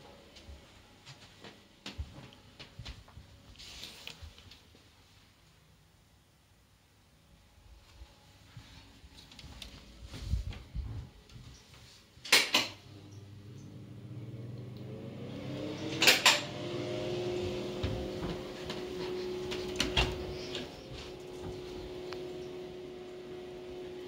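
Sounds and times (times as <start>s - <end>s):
low mechanical hum: 7.0s - 24.0s.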